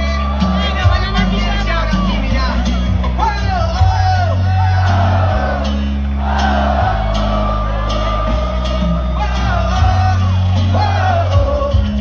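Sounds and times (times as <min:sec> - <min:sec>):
cumbia band playing: 0:00.0 - 0:12.0
heavy bass: 0:00.0 - 0:12.0
singer holding long notes: 0:03.8 - 0:12.0.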